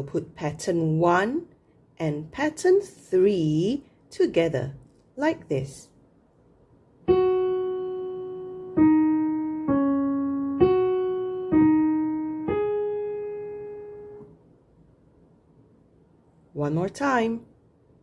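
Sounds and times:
slow piano melody: 7.0 - 14.5.

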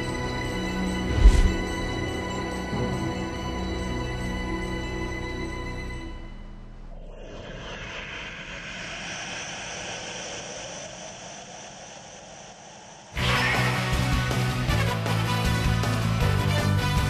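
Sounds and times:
music: 0.0 - 6.9, 13.2 - 17.0
steady rushing noise: 0.9 - 2.1, 6.9 - 13.2.

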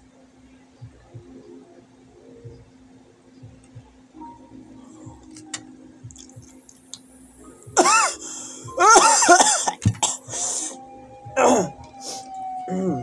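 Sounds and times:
man coughing and hacking: 7.8 - 8.2, 8.8 - 10.3, 11.4 - 11.8.

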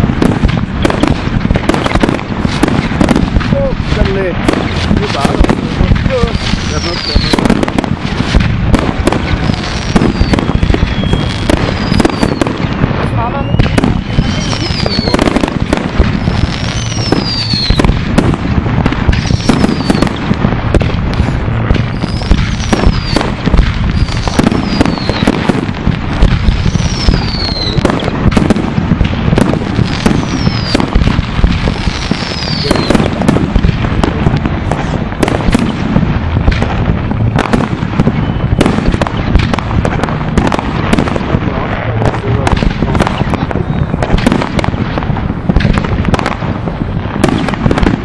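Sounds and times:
fireworks bangs and crackling: 0.0 - 48.0
firework whistles falling in pitch: 6.2 - 7.5, 9.5 - 12.6, 13.3 - 15.4, 16.1 - 17.9, 19.2 - 20.3, 21.9 - 23.3, 23.9 - 25.4, 26.6 - 28.2, 29.9 - 30.9, 31.9 - 33.1, 38.0 - 39.4.

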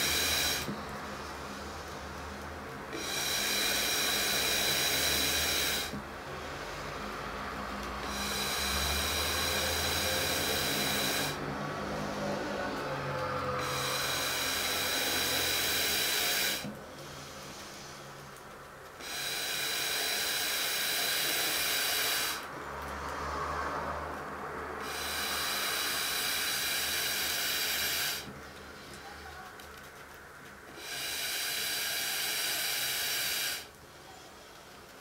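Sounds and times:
air hissing through a tube: 0.0 - 29.5, 30.7 - 35.0.

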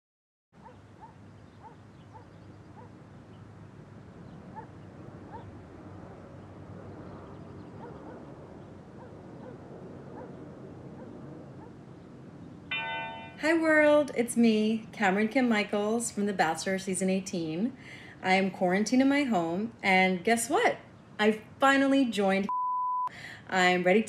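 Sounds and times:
low steady background rumble: 13.4 - 22.5, 23.2 - 24.0.

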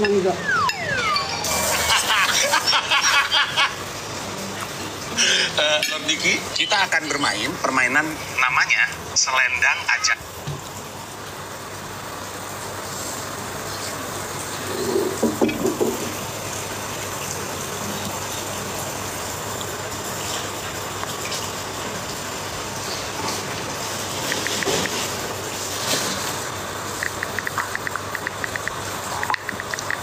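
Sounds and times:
steady rushing hiss: 1.5 - 9.9.

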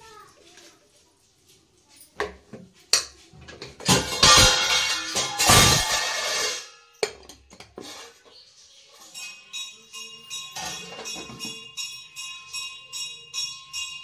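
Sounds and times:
steel ladle clinking on pot: 2.2 - 8.2, 9.1 - 12.0
music with jingling beat: 8.4 - 14.0.

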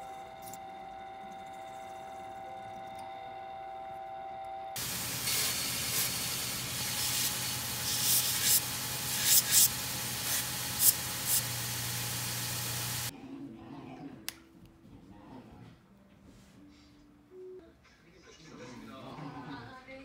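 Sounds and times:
belt sander motor hum: 4.8 - 13.1
metal grinding on sanding belt: 4.8 - 13.1.

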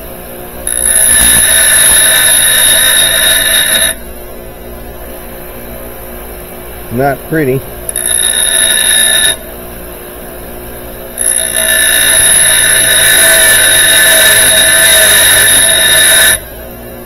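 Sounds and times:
bench grinder grinding metal: 0.7 - 4.0, 7.9 - 9.4, 11.2 - 16.5
grinder motor humming: 0.7 - 4.1, 7.9 - 9.5, 11.1 - 16.7.

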